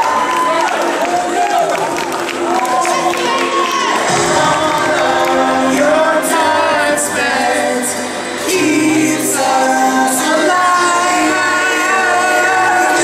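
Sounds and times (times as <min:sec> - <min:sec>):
person singing: 0:02.7 - 0:13.0.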